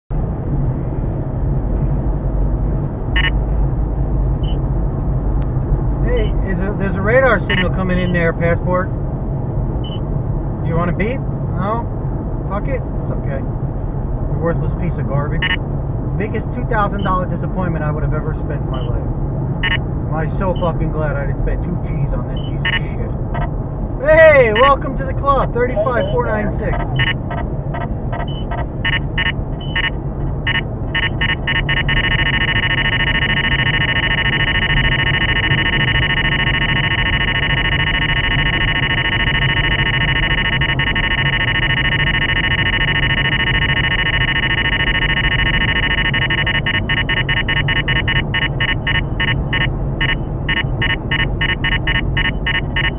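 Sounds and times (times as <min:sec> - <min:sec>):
car road and tyre noise: 0:00.1 - 0:52.9
radar detector beeping: 0:03.0 - 0:03.6, 0:04.3 - 0:04.6, 0:06.1 - 0:08.4, 0:09.8 - 0:10.0, 0:15.4 - 0:15.6, 0:16.9 - 0:17.2, 0:19.6 - 0:19.8, 0:22.3 - 0:23.5, 0:24.1 - 0:25.1, 0:25.7 - 0:52.9.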